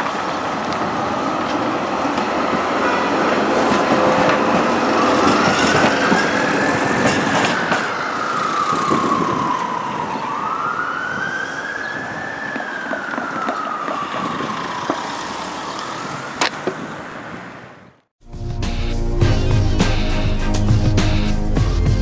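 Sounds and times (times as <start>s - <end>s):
street traffic noise: 0.0s - 18.1s
ambulance siren wailing: 3.9s - 16.4s.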